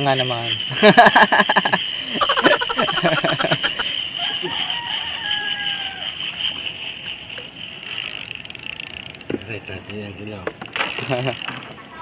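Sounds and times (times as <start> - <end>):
man laughing: 0.8 - 3.9
rooster crowing: 2.2 - 6.4.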